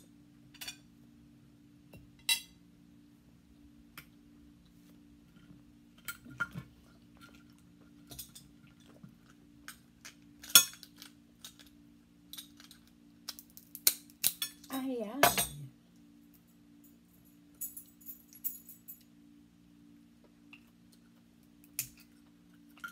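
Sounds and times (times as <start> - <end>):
crab shell cracking: 12.4 - 14.4.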